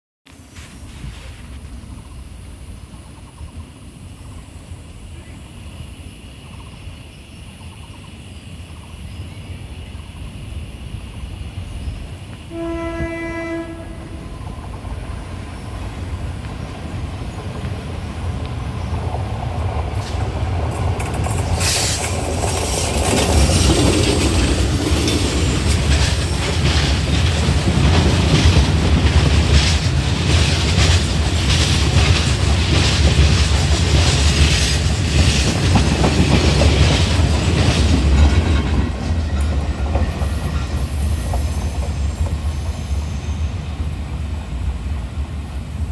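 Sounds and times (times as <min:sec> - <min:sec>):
train horn blast: 0:12.5 - 0:14.4
train wheels clattering on rails: 0:13.6 - 0:44.8.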